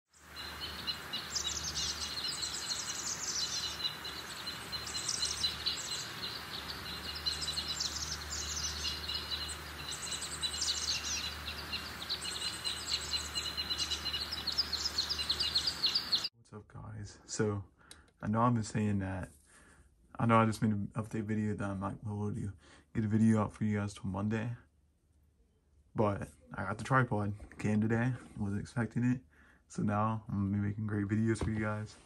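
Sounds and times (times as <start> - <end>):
birds chirping and trilling: 0.1 - 16.3.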